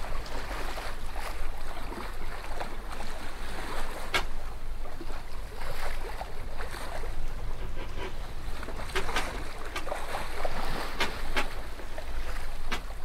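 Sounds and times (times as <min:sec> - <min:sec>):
water rushing in boat wake: 0:00.0 - 0:13.0
steady low rumble: 0:04.4 - 0:13.0.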